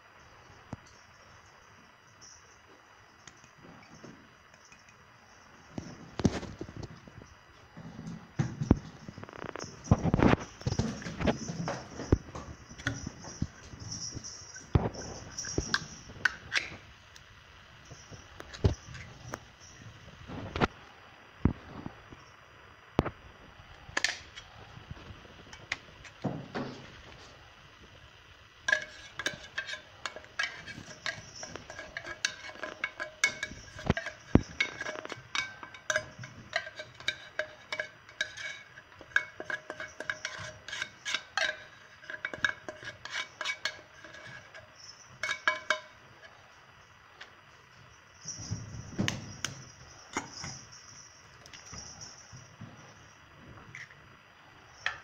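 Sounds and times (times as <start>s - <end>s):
metal spoon scraping glass dishes: 12.7s - 16.7s, 28.7s - 46.0s.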